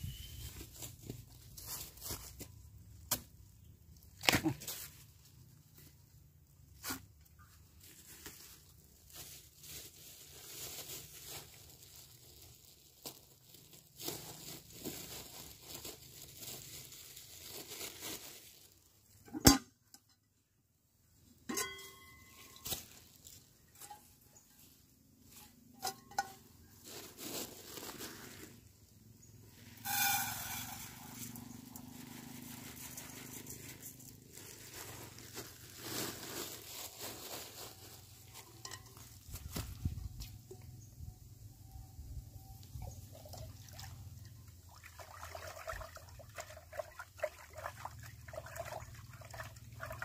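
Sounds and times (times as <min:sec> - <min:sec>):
plastic bags rustling: 0:00.0 - 0:19.2, 0:22.2 - 0:40.3
metallic clinks of pot lid: 0:21.5 - 0:22.4.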